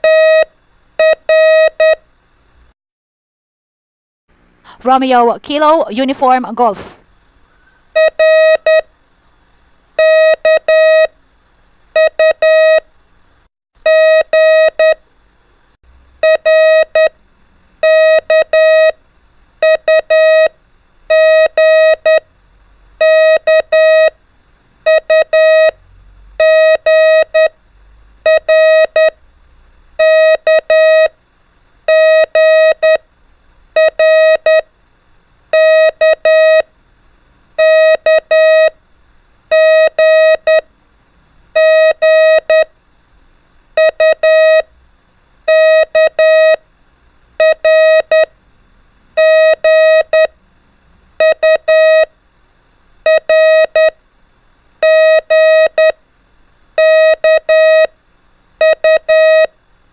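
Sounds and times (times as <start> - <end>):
morse code tone: 0.0 - 2.0, 8.0 - 8.9, 10.0 - 11.1, 12.0 - 12.8, 16.2 - 17.1, 17.8 - 18.9, 19.6 - 20.5, 23.0 - 24.1, 24.9 - 25.8, 26.4 - 27.5, 28.3 - 29.2, 30.0 - 31.1, 31.9 - 33.0, 33.8 - 34.6, 35.6 - 36.7, 37.6 - 38.8, 39.5 - 40.6, 41.6 - 42.7, 43.8 - 44.7, 45.5 - 46.6, 47.4 - 48.3, 49.2 - 50.3, 51.2 - 52.1, 53.1 - 54.0, 54.8 - 56.0, 56.8 - 57.9, 58.6 - 59.5.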